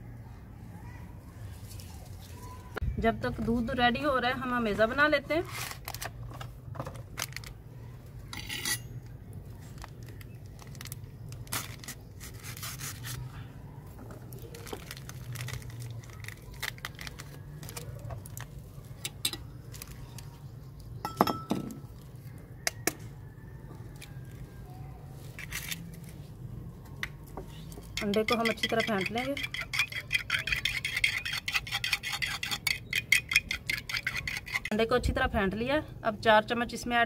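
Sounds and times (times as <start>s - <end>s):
foil packet rustling and tearing: 5.5s - 7.6s, 9.6s - 13.3s, 14.3s - 18.9s
spoon clinking on clay bowls: 21.0s - 21.9s, 27.8s - 34.8s.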